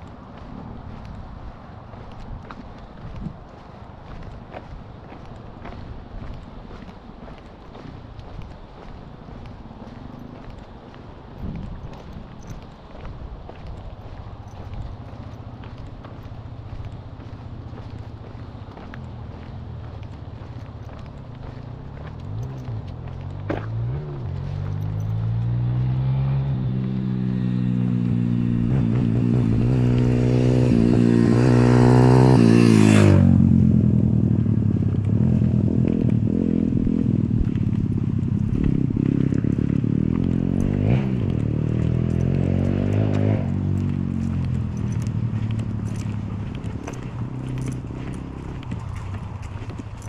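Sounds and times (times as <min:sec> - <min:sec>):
vehicle engine passing by: 0:13.6 - 0:50.0.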